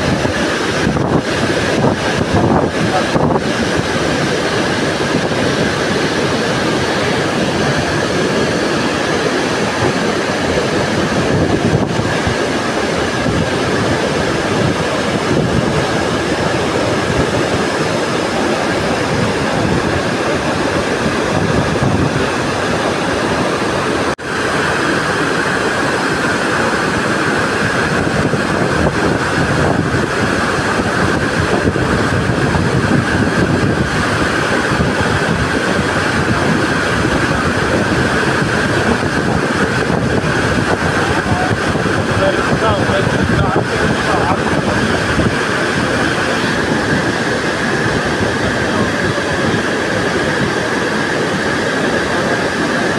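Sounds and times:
waterfall roaring: 0:00.0 - 0:52.9.

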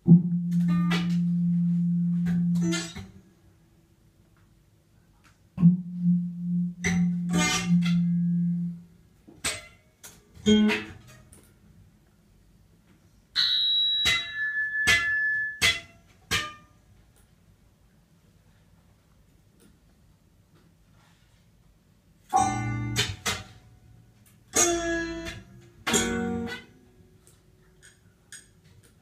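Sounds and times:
low held tone: 0:00.0 - 0:03.2, 0:05.6 - 0:09.0
zither plucked and struck: 0:00.0 - 0:03.2, 0:05.6 - 0:09.8, 0:10.4 - 0:11.3, 0:13.4 - 0:16.7, 0:22.3 - 0:23.6, 0:24.5 - 0:27.0.

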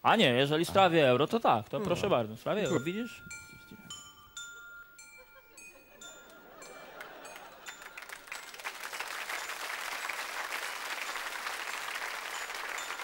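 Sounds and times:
studio audience applauding: 0:06.2 - 0:13.0.

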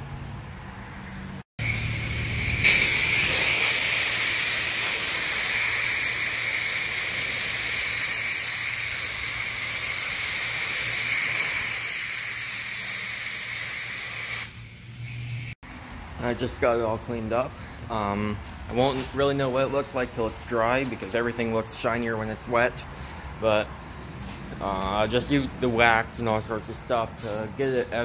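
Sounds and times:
pressure washer spraying water: 0:01.6 - 0:15.6.

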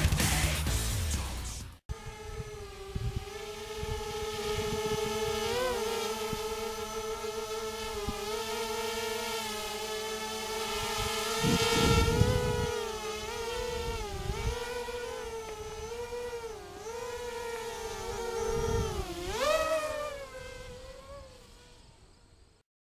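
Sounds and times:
quadcopter motors whining: 0:01.9 - 0:22.6
wind buffeting on microphone: 0:02.0 - 0:08.5, 0:10.6 - 0:20.8.

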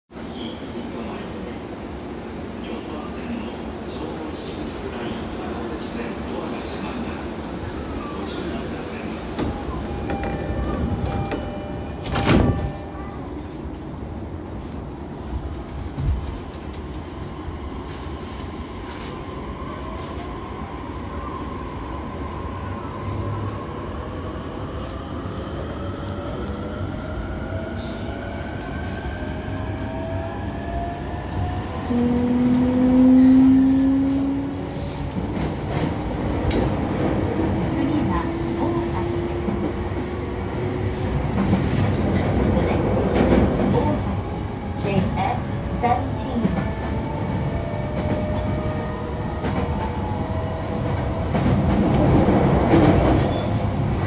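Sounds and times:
train rumble: 0:00.2 - 0:54.0.

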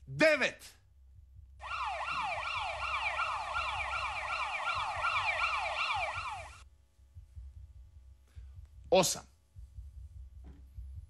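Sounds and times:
electronic siren wail: 0:01.6 - 0:06.6.

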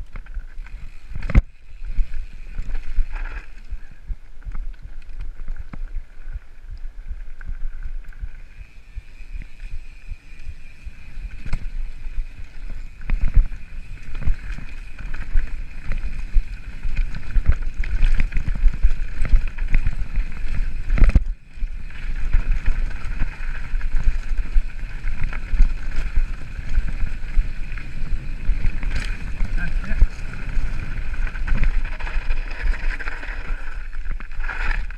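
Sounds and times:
mountain bike rattling on rocky track: 0:00.0 - 0:34.9
wind buffeting microphone: 0:10.8 - 0:33.2.

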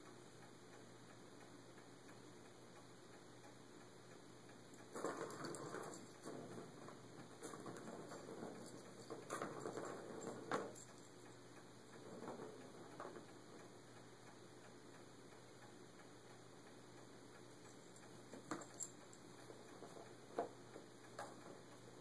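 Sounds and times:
ball clicking against track: 0:04.8 - 0:11.2, 0:11.9 - 0:13.7
ball rolling in plastic track: 0:04.9 - 0:10.9, 0:11.9 - 0:13.7.

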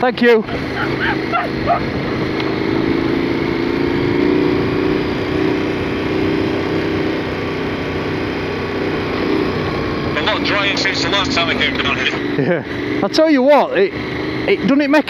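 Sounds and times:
motorcycle engine cruising: 0:00.0 - 0:15.0
wind noise: 0:00.4 - 0:03.2.

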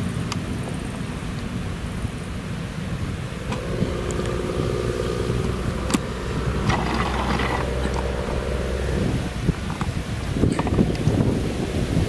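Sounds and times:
low engine drone: 0:03.1 - 0:10.3
higher hum: 0:03.2 - 0:10.3.

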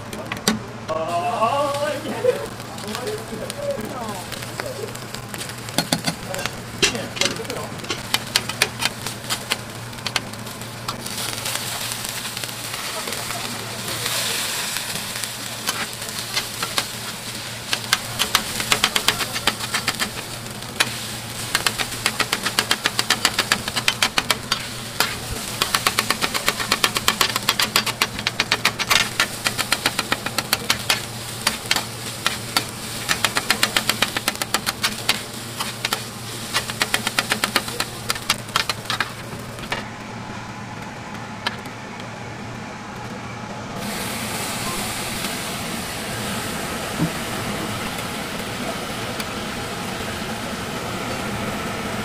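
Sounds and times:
food sizzling on griddle: 0:00.9 - 0:40.2, 0:43.8 - 0:52.0
spatulas clacking on griddle: 0:05.4 - 0:10.3, 0:15.7 - 0:39.8.

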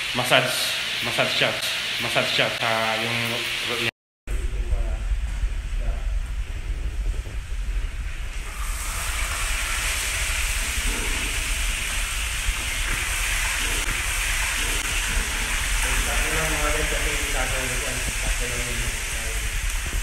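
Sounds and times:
low hum: 0:04.3 - 0:20.0
fish sizzling in hot oil: 0:08.3 - 0:20.0.

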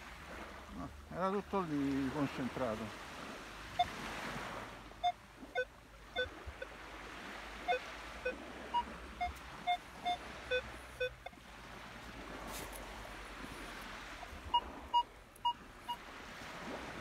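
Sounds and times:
metal detector beeps: 0:03.8 - 0:04.0, 0:05.0 - 0:06.8, 0:07.6 - 0:11.4, 0:14.2 - 0:16.0.

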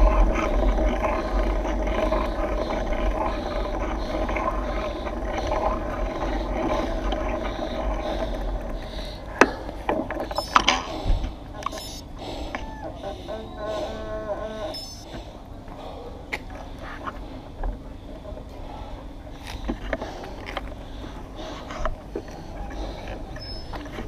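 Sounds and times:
bike clicks and knocks: 0:00.0 - 0:12.7
bike tyres rolling on pavement: 0:00.0 - 0:15.9, 0:16.6 - 0:24.0.

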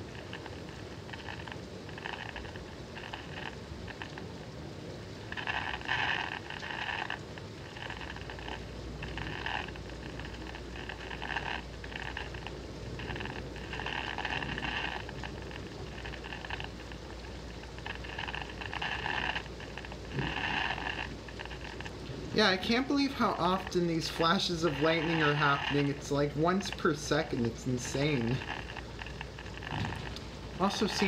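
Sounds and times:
steady hiss: 0:00.0 - 0:31.0
radio static bursts: 0:17.6 - 0:31.0.

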